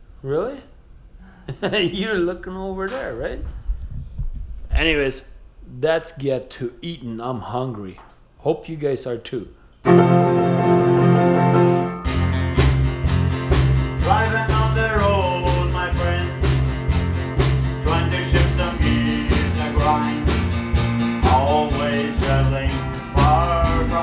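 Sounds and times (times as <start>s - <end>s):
band playing country song: 9.9s - 24.0s.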